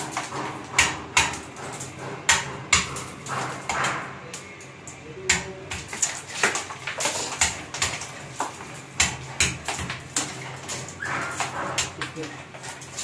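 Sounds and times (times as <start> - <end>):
hammer striking a chisel: 0.1 - 4.1, 9.0 - 10.3.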